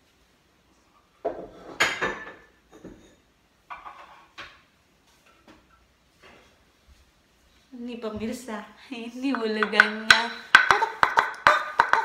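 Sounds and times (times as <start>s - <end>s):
kitchenware knocking and clattering: 1.2s - 4.6s, 9.4s - 12.0s.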